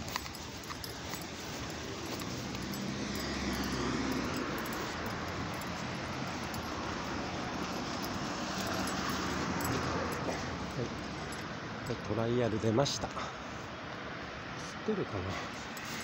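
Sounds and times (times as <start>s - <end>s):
motor vehicle passing: 0.0s - 12.2s.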